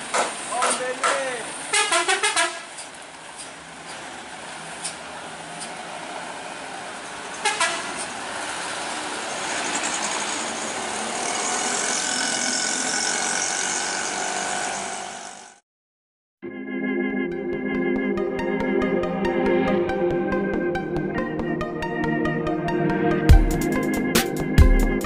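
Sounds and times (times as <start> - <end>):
vehicles in slow traffic: 0.0 - 15.6
steady horn-like tone: 1.7 - 2.7, 7.4 - 8.0
short horn toots: 1.7 - 2.8, 7.4 - 8.1
keyboard organ music: 16.4 - 25.0.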